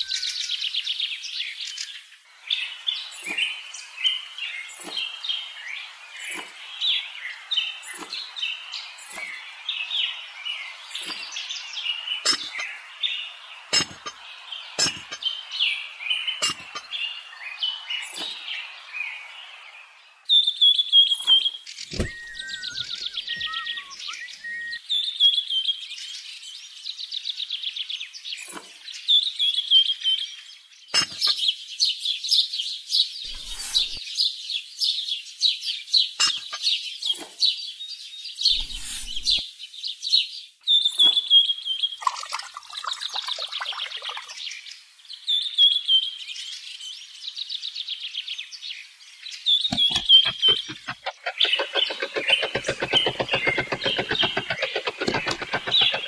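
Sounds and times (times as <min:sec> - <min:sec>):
birds chirping trills: 0:00.0 - 0:24.8, 0:33.3 - 0:34.1, 0:49.3 - 0:56.0.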